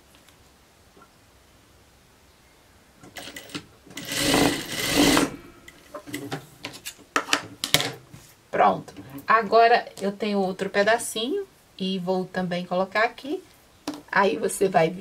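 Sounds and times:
sewing machine running: 0:03.2 - 0:05.4.

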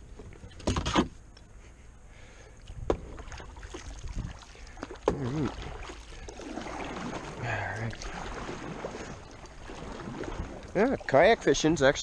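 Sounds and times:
light water sounds: 0:02.3 - 0:12.0
knocks against kayak hull: 0:02.8 - 0:03.2
short wordless voice: 0:07.4 - 0:08.0.

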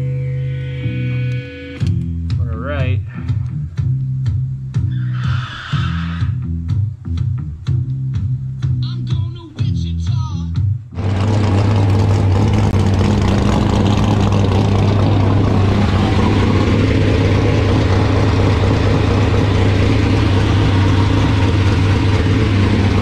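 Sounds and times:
race engine idling: 0:11.0 - 0:23.0.

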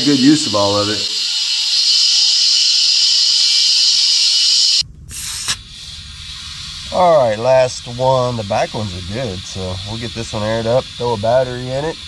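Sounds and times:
steady loud hiss: 0:00.0 - 0:12.0
low rumble: 0:04.8 - 0:12.0.

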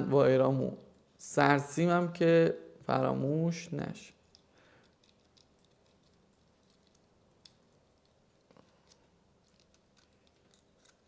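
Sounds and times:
faint clicks of small parts: 0:04.1 - 0:11.0.

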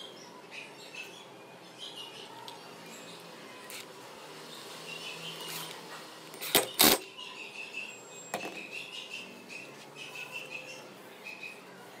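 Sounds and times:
faint bird chirps: 0:06.7 - 0:11.9.

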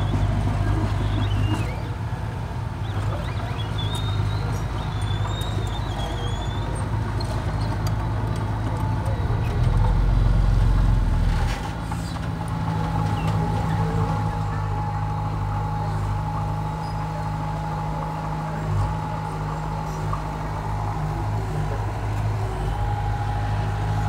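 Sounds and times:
diesel dozer engine running: 0:00.0 - 0:24.0.

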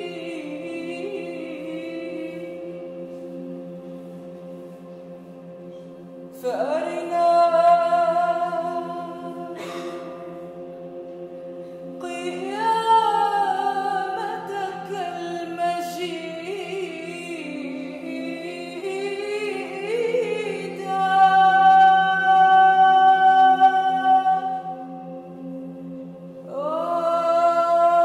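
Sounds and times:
woman singing a hymn: 0:00.0 - 0:03.3, 0:06.4 - 0:09.8, 0:12.0 - 0:25.2, 0:26.5 - 0:28.0.

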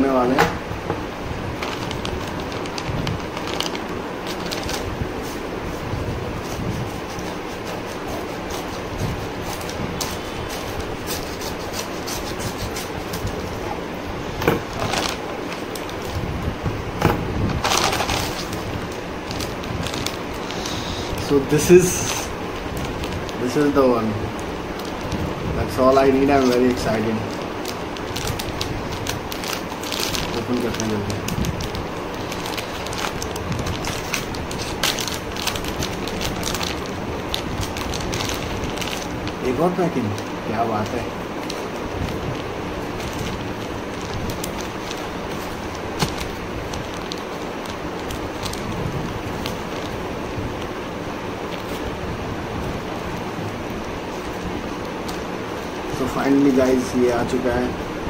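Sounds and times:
steady background noise: 0:00.0 - 0:58.0
stiff paper crinkling: 0:01.4 - 0:57.7
scissors snipping paper: 0:06.4 - 0:13.5.

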